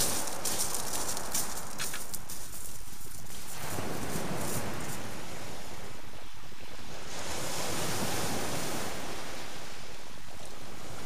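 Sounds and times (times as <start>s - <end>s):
sea surf breaking on shingle: 0.0s - 5.1s.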